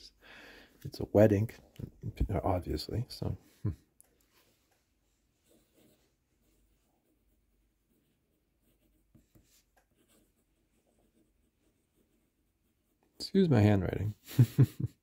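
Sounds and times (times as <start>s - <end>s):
fountain pen scratching on paper: 5.4s - 13.0s.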